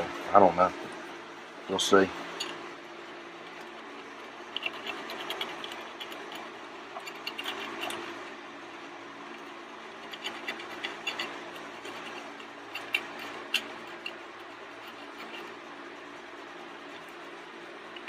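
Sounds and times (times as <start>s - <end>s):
steady low hum: 0.0s - 18.0s
screwdriver scratching metal: 4.5s - 8.2s, 10.0s - 15.6s.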